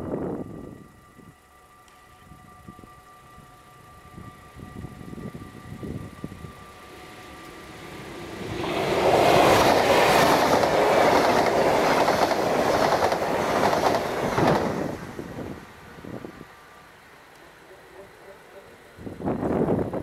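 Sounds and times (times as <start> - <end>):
train rushing with wheel clatter: 4.3 - 16.6.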